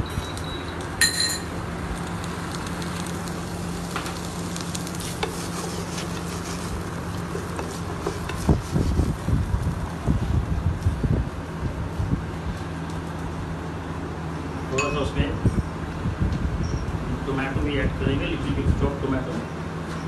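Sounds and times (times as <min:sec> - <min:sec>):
sharp ringing clink: 0:01.0 - 0:01.5
onion sizzling in a frying pan: 0:01.2 - 0:12.9.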